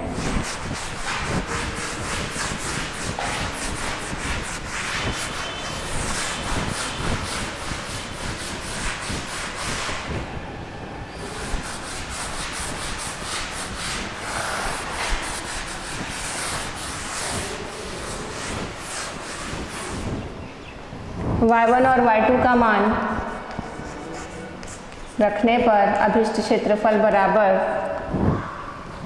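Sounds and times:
duster rubbing on chalkboard: 0:00.0 - 0:10.3, 0:11.1 - 0:20.4, 0:23.1 - 0:25.5.

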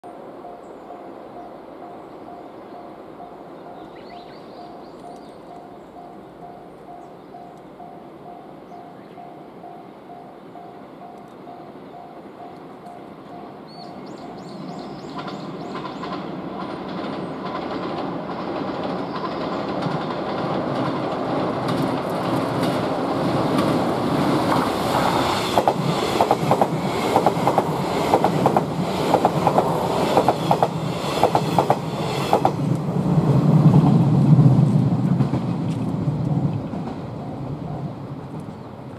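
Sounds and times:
train rumbling on bridge: 0:00.0 - 0:38.9
wheels clacking over rail joints: 0:15.0 - 0:32.9.

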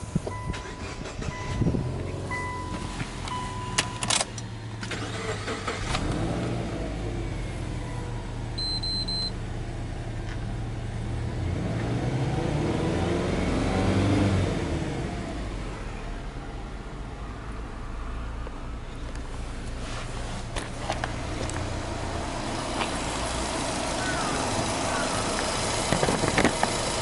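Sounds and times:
car engine starting and idling: 0:00.0 - 0:27.0
car warning chime: 0:00.2 - 0:04.3, 0:07.8 - 0:09.4
high beep: 0:00.3 - 0:04.1, 0:08.6 - 0:09.4
engine revving: 0:04.8 - 0:07.8, 0:10.5 - 0:15.7.

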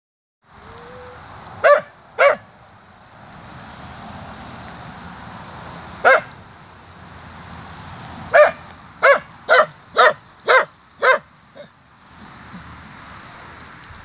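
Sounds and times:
dog barking: 0:01.6 - 0:02.5, 0:06.0 - 0:06.3, 0:08.3 - 0:11.7.

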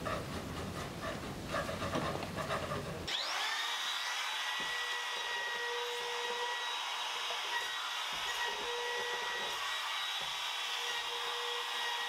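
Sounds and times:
electric router whining: 0:03.1 - 0:12.0.

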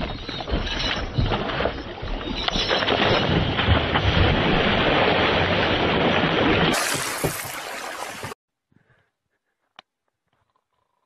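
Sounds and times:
water rushing past boat: 0:00.0 - 0:08.4.

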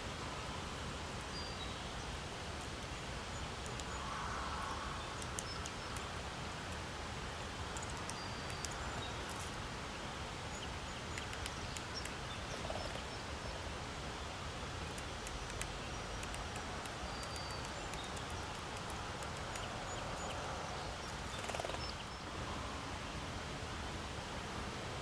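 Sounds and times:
outdoor background hiss: 0:00.0 - 0:25.0.

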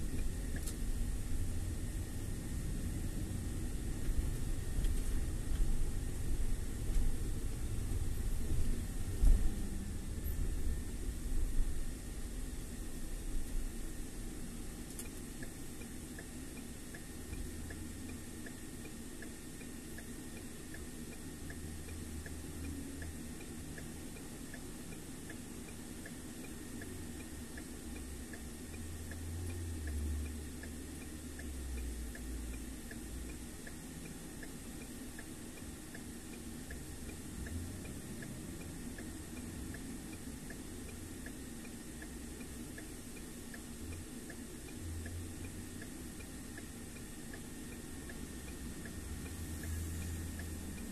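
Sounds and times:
faint regular tick: 0:00.0 - 0:00.8, 0:14.8 - 0:50.9
road and engine rumble: 0:00.0 - 0:42.9, 0:43.5 - 0:50.9.

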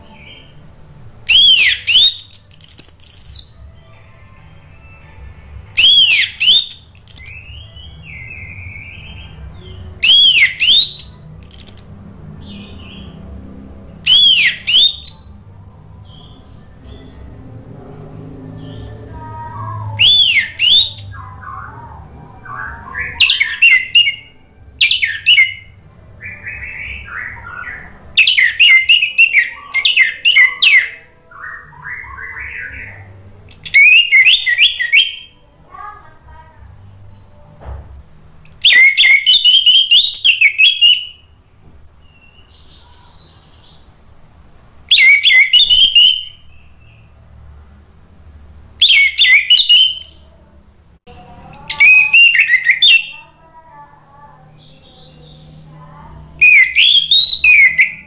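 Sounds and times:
thrush singing warbling song: 0:00.0 - 0:37.6, 0:38.2 - 0:58.0
soft low bird twittering: 0:01.3 - 0:03.6, 0:05.7 - 0:13.2, 0:14.1 - 0:35.4.

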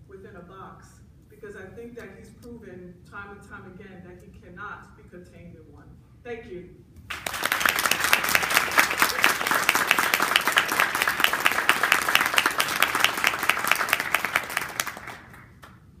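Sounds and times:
audience applauding: 0:07.1 - 0:15.8.

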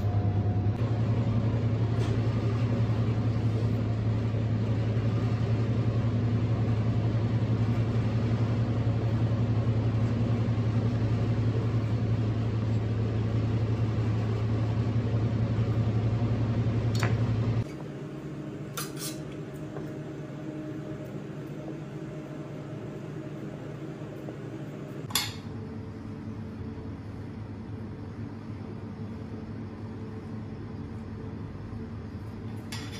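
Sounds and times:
kitchen machine hum: 0:00.0 - 0:32.9.

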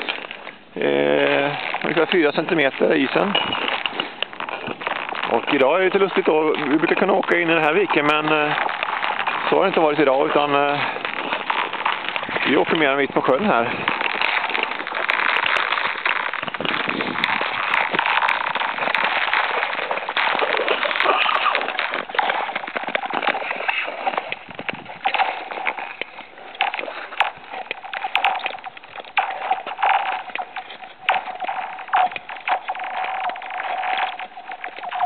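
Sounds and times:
ice skates scraping on ice: 0:00.0 - 0:35.0
sharp ice clicks: 0:00.0 - 0:35.0.

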